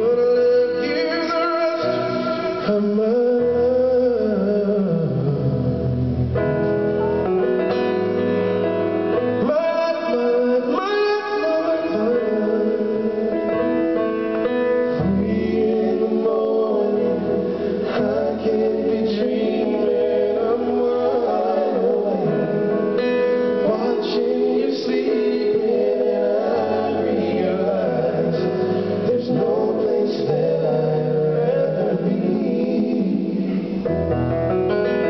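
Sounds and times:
grand piano: 0.0 - 35.0
male voices singing in harmony: 9.4 - 13.6, 14.9 - 33.9.

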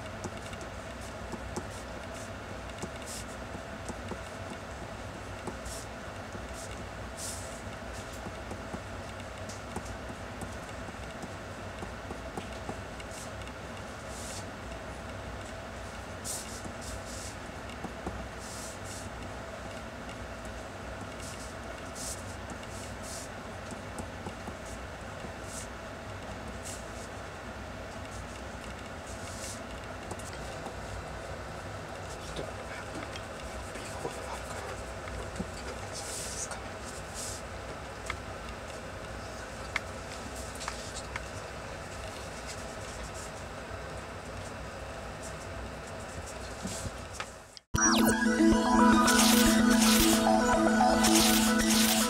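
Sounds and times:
low background hum: 0.0 - 52.0
low hum: 47.8 - 52.0.

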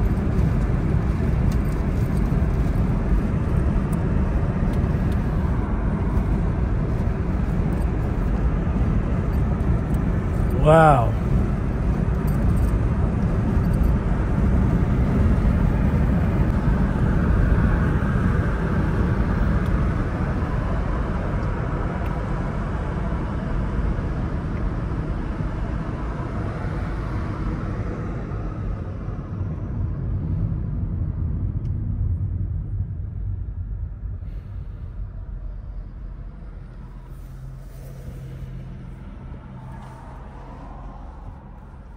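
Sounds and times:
car cabin road and engine noise: 0.0 - 41.9.

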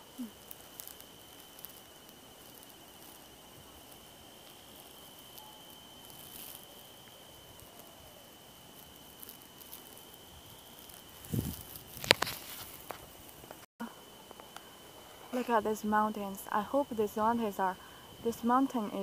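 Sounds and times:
high-pitched insect trill: 0.0 - 19.0
brief rustle: 11.2 - 13.6.

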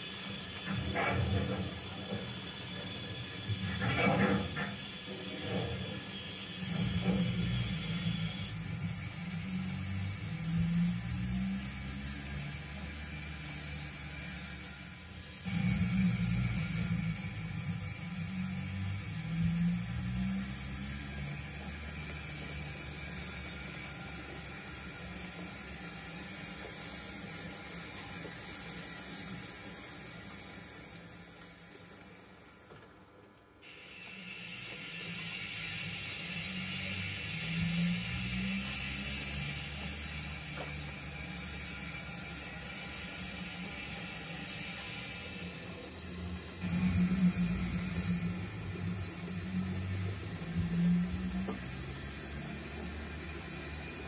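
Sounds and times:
low motor hum: 6.6 - 29.8, 45.7 - 54.0.

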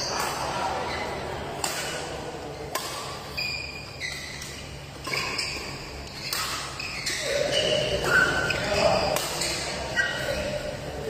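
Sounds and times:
shoes squeaking on court: 0.0 - 2.1, 2.8 - 10.8
hum of large hall: 0.0 - 11.0
racket striking shuttlecock: 1.6 - 2.1, 2.7 - 3.4, 4.1 - 6.8, 9.1 - 9.6.

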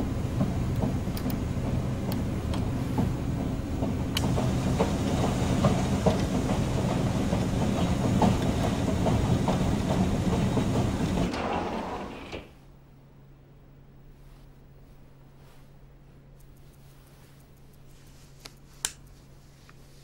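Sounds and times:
rotating machine rumble with clicks: 0.0 - 12.6
faint low hum: 9.8 - 20.0.

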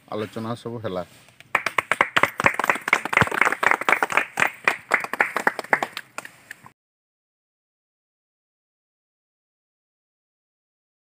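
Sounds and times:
people clapping: 1.5 - 6.6.

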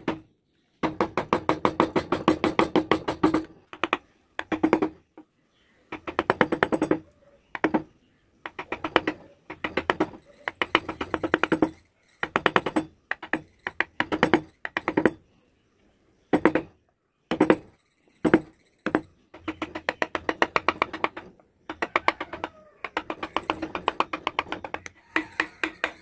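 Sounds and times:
chisel tapping into wood: 0.8 - 5.2, 7.6 - 15.2, 18.3 - 26.0.

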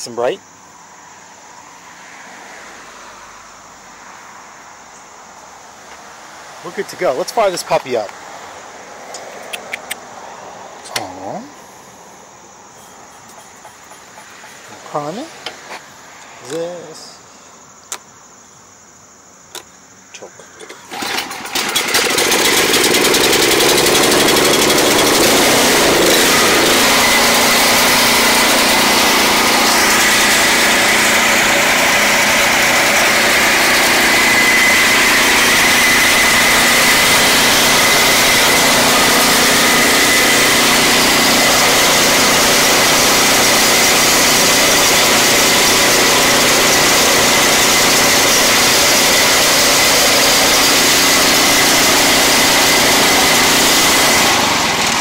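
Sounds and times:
snowblower engine running: 20.6 - 55.0.

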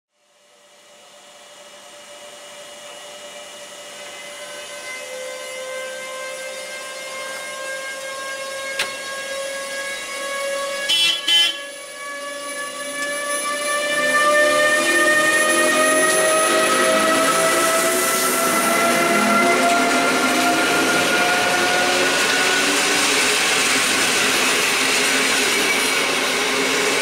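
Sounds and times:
electric locomotive whining: 0.4 - 27.0
train horn blasts: 4.4 - 12.2.

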